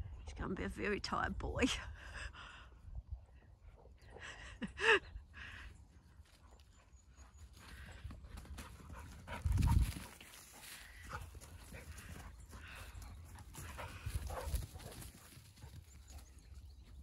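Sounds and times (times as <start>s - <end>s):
dogs playing on grass: 6.2s - 17.0s.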